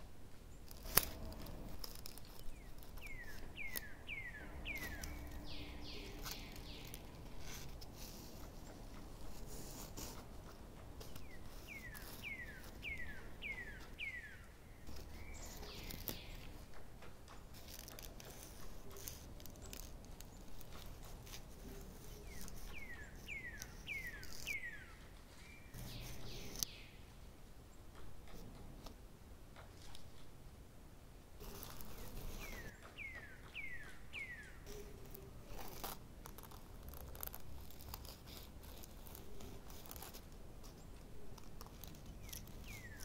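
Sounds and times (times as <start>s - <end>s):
bird whistling calls: 3.0s - 7.0s, 11.3s - 14.5s, 42.2s - 43.0s.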